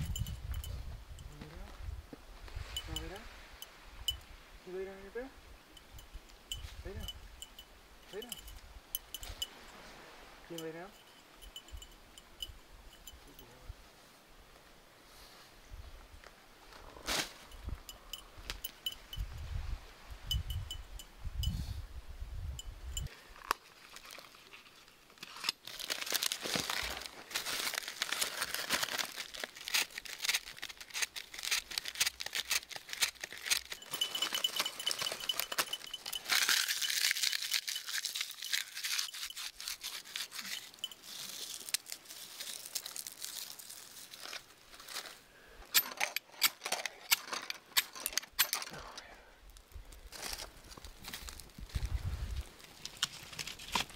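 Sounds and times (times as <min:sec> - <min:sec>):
bark and shavings crinkling: 0:23.4 - 0:45.2, 0:50.2 - 0:53.9.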